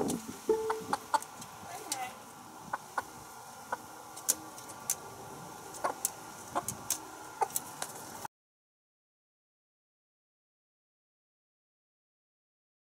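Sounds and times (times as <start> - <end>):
chicken clucks: 0.0 - 1.4, 2.6 - 4.9, 5.6 - 7.7
faint garden background: 0.0 - 8.3.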